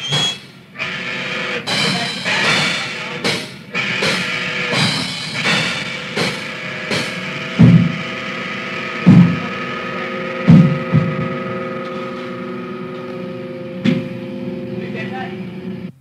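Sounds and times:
crashing cymbals: 0.0s - 16.0s
steady held tones: 0.0s - 16.0s
loud low drum hits: 1.7s - 13.1s.

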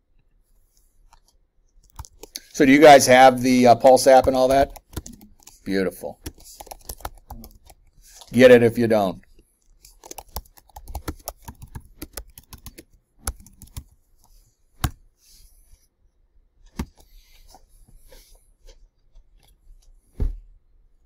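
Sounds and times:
keyboard typing: 1.1s - 2.5s, 3.8s - 8.4s, 9.7s - 14.0s.

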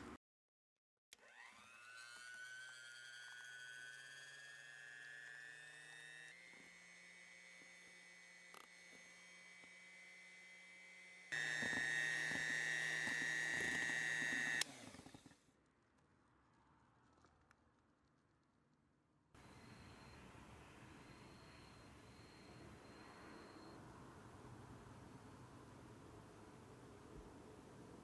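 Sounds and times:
hand mixer motor whining: 1.2s - 15.4s.

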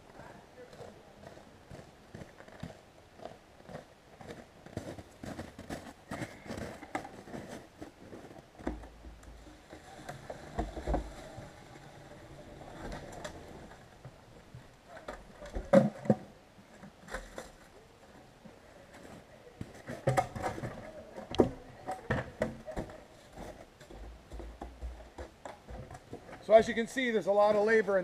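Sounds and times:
plastic bucket clunks and knocks: 10.1s - 11.2s.

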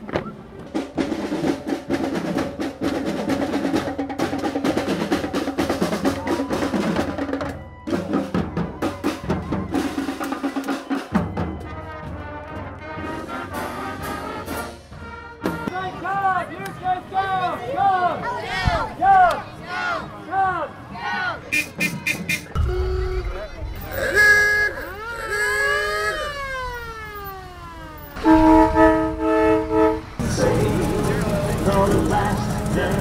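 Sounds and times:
snare and tenor drums: 0.0s - 16.0s, 21.5s - 26.5s
brass horns: 8.8s - 15.9s, 21.4s - 27.1s, 28.2s - 33.0s
cymbals: 21.5s - 26.6s.

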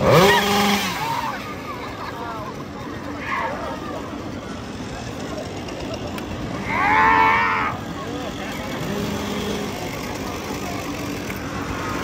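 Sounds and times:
chainsaw engine revving: 0.0s - 1.7s, 7.8s - 12.0s.

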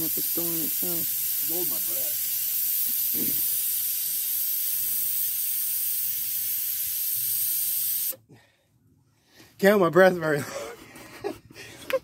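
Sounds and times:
refrigerant hissing from valve: 0.0s - 8.2s.

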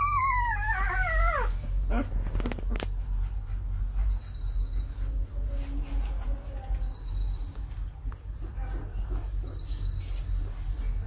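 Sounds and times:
puppy squeaking: 0.0s - 2.8s.

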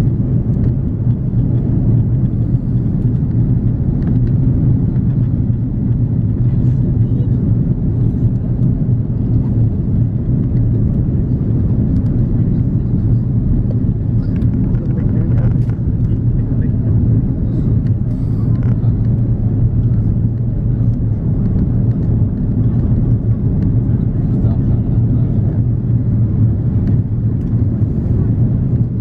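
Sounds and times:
airplane cabin rumble: 0.0s - 29.0s.

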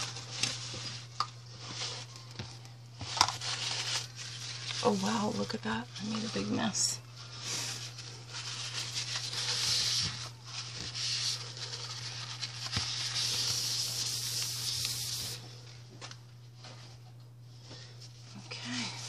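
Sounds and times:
paper towel wiping a tabletop: 3.0s - 15.5s.

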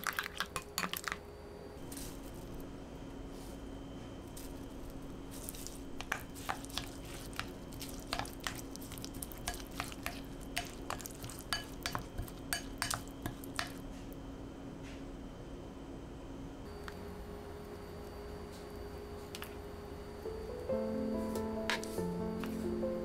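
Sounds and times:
spatula tapping glass bowl: 9.5s - 13.8s.

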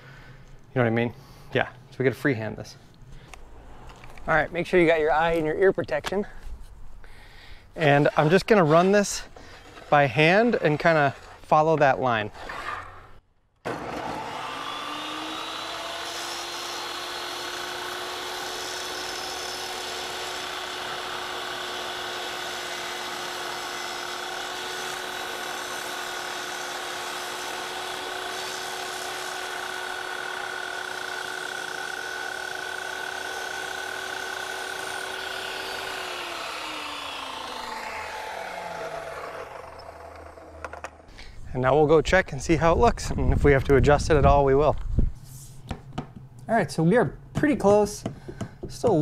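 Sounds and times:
table saw whining: 13.6s - 41.1s.

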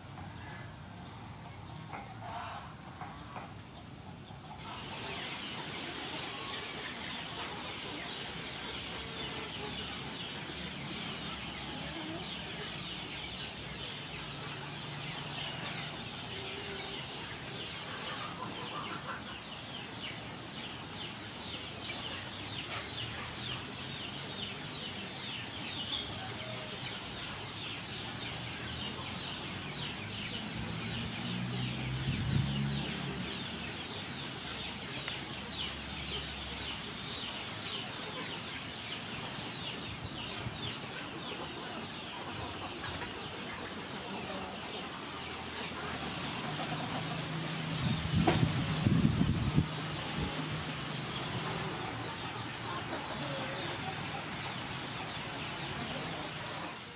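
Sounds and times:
chickens clucking: 4.2s - 56.9s.

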